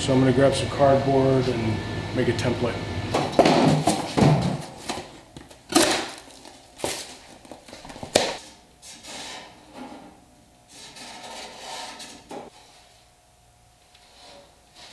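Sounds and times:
cardboard rustling and scraping: 3.5 - 10.1, 10.7 - 12.9.

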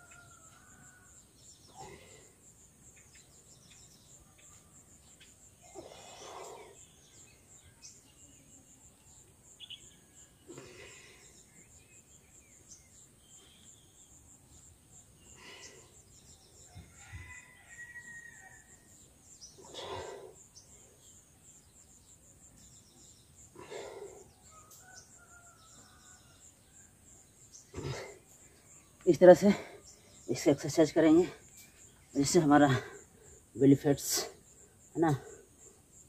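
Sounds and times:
faint insect chirping: 0.0 - 36.0
man breathing with effort: 1.6 - 2.5, 5.6 - 6.9, 10.5 - 11.7, 15.3 - 16.2, 19.6 - 21.1, 23.5 - 24.5, 32.8 - 33.5.

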